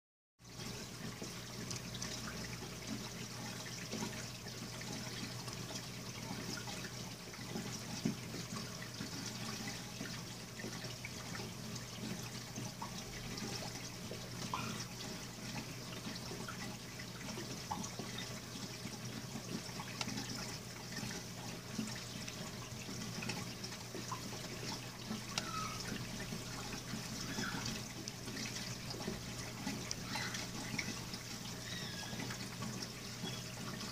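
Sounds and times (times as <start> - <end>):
water dripping: 0.4 - 33.9
water trickling and splashing: 0.4 - 33.9.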